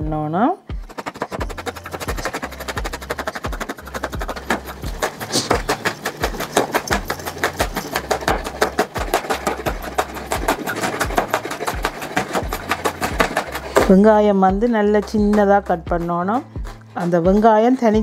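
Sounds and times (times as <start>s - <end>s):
knife chopping on cutting board: 0.9s - 14.0s.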